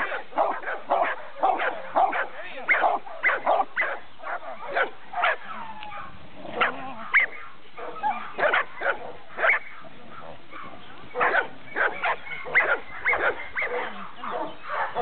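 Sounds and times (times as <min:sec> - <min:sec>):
dog barking high-pitched: 0:00.0 - 0:09.6, 0:10.6 - 0:15.0.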